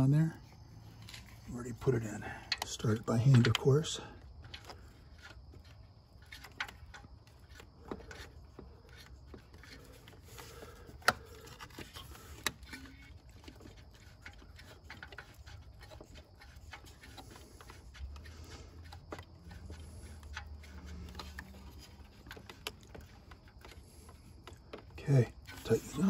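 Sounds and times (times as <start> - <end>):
light metal clicks and taps: 2.4 - 4.8.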